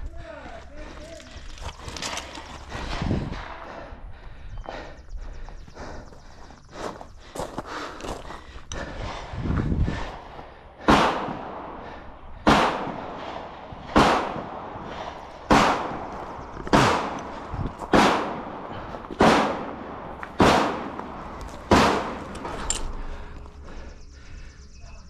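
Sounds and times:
gunshots with echo: 10.0 - 22.7.

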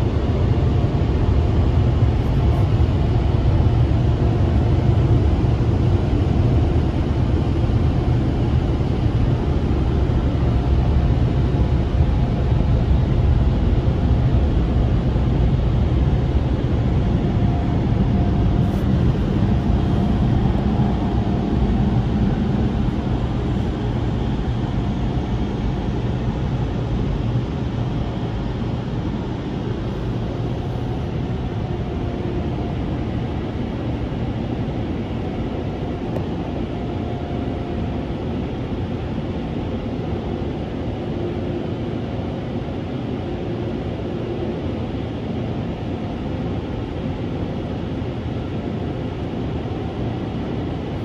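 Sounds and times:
car-wash air blowers: 0.0 - 51.0.

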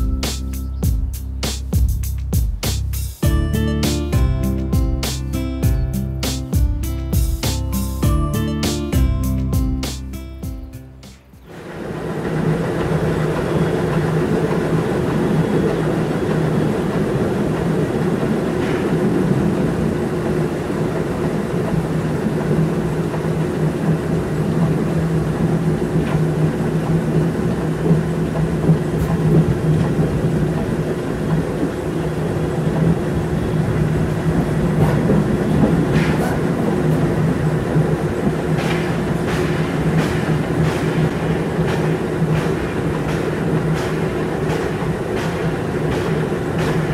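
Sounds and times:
steam locomotive running: 11.1 - 46.9.

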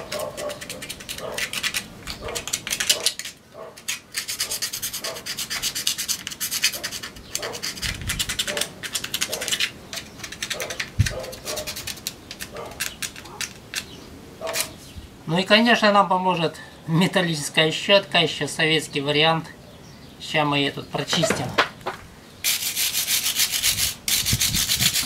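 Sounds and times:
knife scraping metal casing: 0.0 - 14.8, 22.4 - 25.0.

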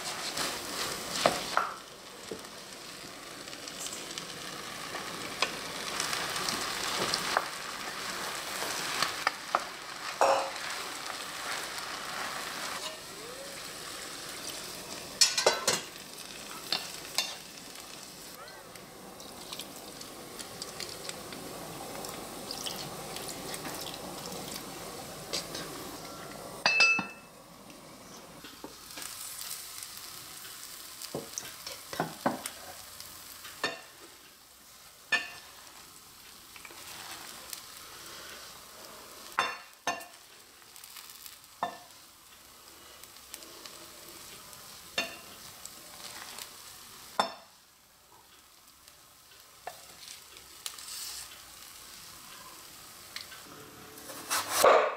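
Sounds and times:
rice simmering and sizzling in pot: 0.0 - 54.9
wooden spatula scraping pot: 54.0 - 54.7.

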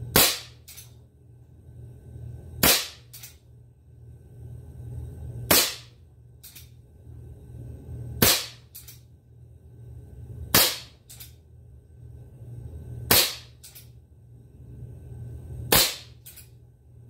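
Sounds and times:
low hum: 0.0 - 17.0
air pistol shots: 0.1 - 0.8, 2.6 - 3.3, 5.5 - 5.9, 8.2 - 8.9, 10.5 - 11.2, 13.1 - 13.8, 15.7 - 16.3.

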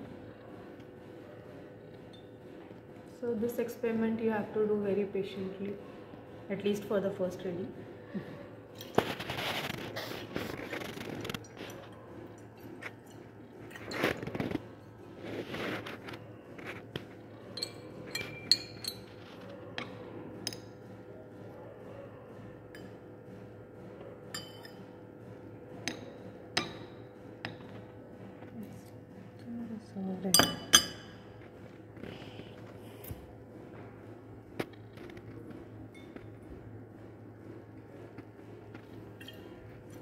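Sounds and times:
glass rod clinking in flask: 17.6 - 19.1, 30.4 - 31.1.

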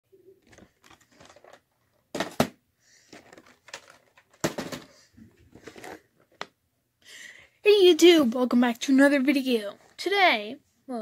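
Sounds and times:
crinkling rustling: 0.4 - 2.3, 3.0 - 6.5.

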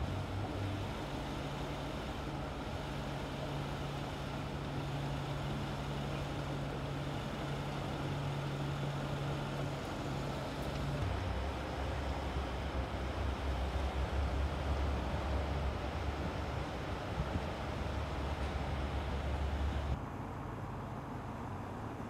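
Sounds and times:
car engine running: 0.0 - 20.0.

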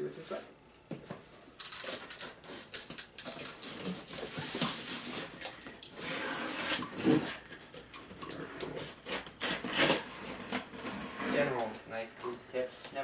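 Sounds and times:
box cutter slicing tape: 5.9 - 7.4, 8.8 - 11.3.

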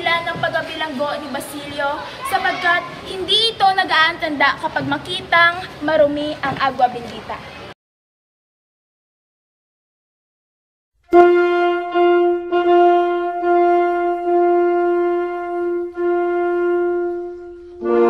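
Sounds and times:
chord of instruments: 11.1 - 18.0
wind instrument holding note: 11.1 - 18.0.

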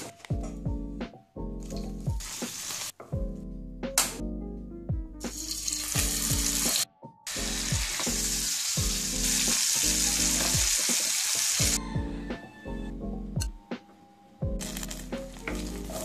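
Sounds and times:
chicken sizzling in oil: 1.9 - 2.9, 5.3 - 11.8.

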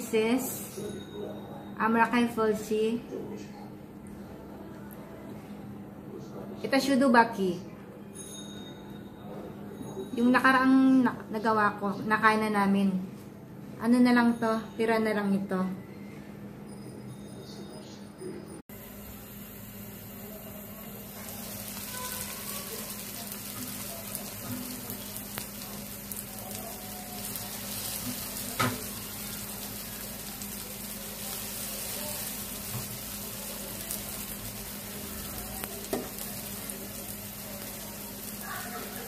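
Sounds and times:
food sizzling in oil: 18.8 - 39.0.

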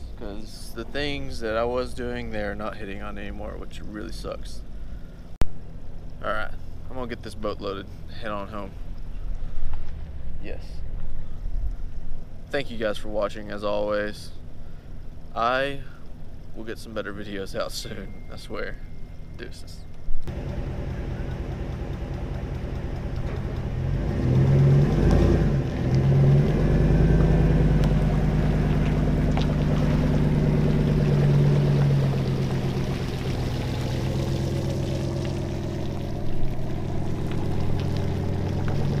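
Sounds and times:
truck engine under load: 20.3 - 39.0.

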